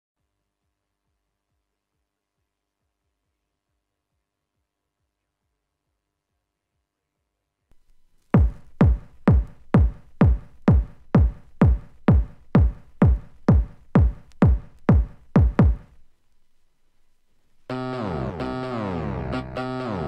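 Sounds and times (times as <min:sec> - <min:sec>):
drum machine kick drum: 0:08.3 - 0:16.0
synthesizer chord: 0:17.7 - 0:20.0.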